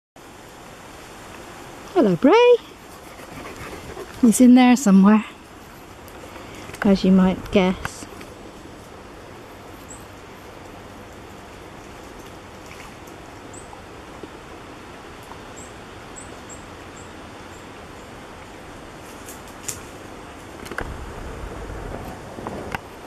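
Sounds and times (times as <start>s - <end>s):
steady woodland hiss: 0.2s - 23.0s
low rumble with knocks: 20.6s - 23.0s.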